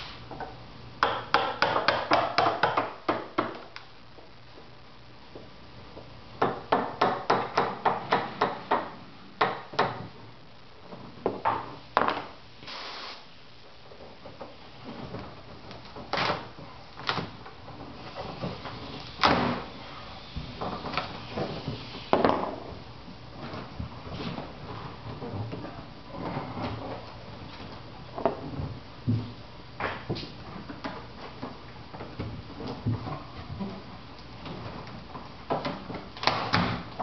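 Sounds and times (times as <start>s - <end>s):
hammer tapping fiberglass: 1.0s - 3.6s.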